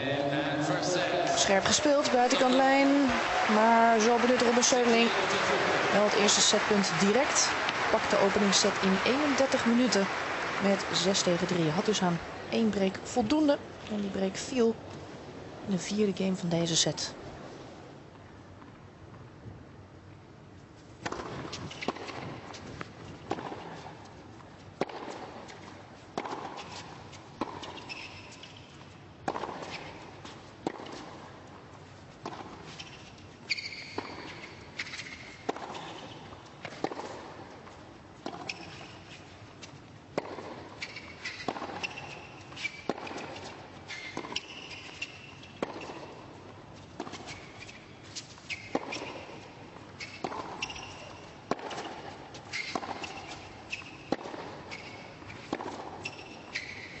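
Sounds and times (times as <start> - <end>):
tennis ball struck by racquets: 1.5 - 11.9, 21.0 - 22.6, 24.8 - 28.6, 29.2 - 31.3, 32.2 - 33.0, 33.6 - 37.5, 40.2 - 57.0
shoe squeaks on court: 27.6 - 28.8, 32.7 - 36.3, 38.3 - 39.2, 40.7 - 46.2, 47.0 - 57.0.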